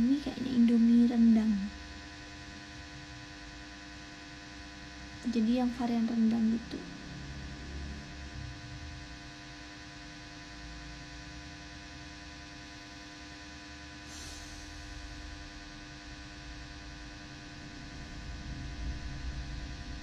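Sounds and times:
electrical hum and buzz: 0.0s - 20.0s
low rumble: 6.7s - 9.4s, 14.2s - 20.0s.

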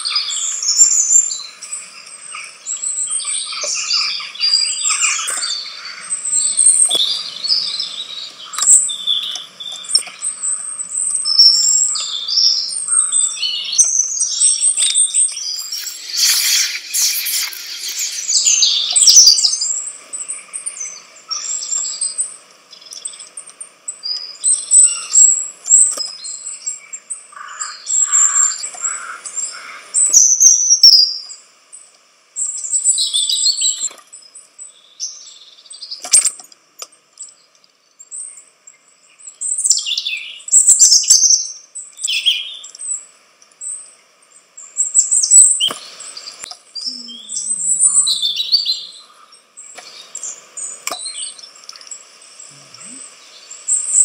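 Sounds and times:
songbirds chirping: 0.0s - 54.0s.

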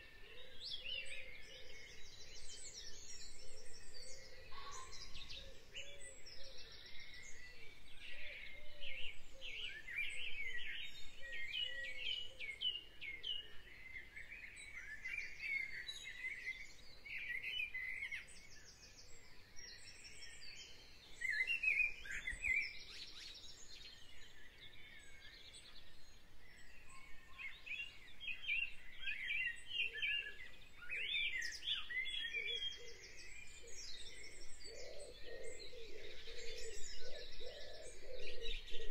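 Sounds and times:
low wavering bird calls: 0.0s - 7.8s, 26.9s - 38.9s
birds chirping and singing: 0.0s - 38.9s.

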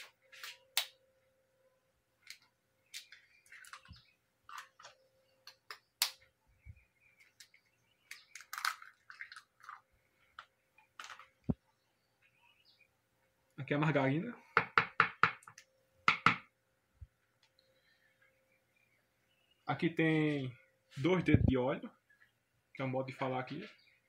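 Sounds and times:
eggs cracking on plastic jar: 7.2s - 11.5s.

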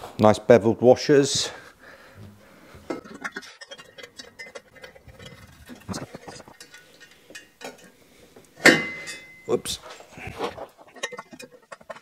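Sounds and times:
metal bolts clicking and clinking: 2.9s - 8.0s, 8.6s - 9.8s, 10.9s - 12.0s.

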